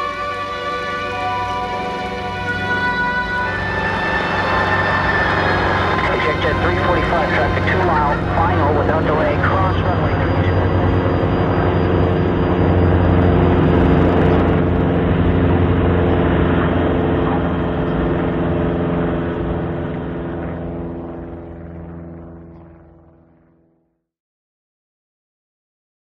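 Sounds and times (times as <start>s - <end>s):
propeller aircraft engine in flight: 0.0s - 24.0s.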